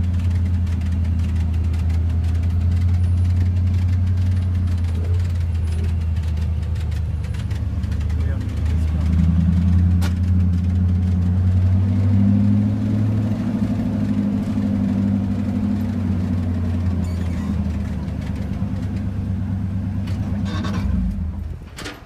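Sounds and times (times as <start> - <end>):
car engine running inside car: 0.0 - 21.6.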